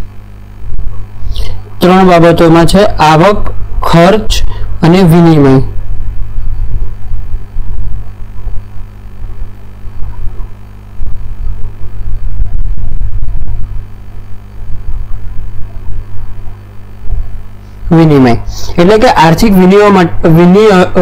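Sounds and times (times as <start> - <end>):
low electrical mains hum: 0.0 - 21.0
fluctuating low rumble: 3.2 - 18.1.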